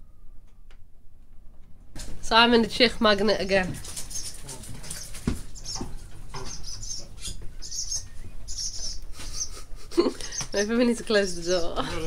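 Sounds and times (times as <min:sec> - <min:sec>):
small birds cheeping: 0:02.7 - 0:11.8.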